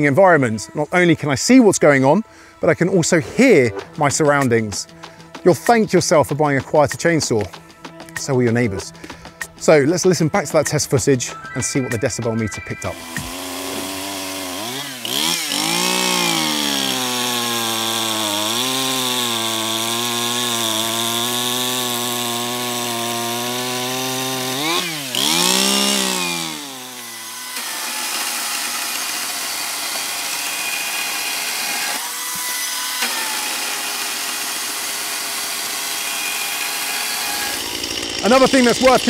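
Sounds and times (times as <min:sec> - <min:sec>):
electric chainsaw whirring: 0:12.8 - 0:39.0
petrol chainsaw cutting wood: 0:12.8 - 0:39.0.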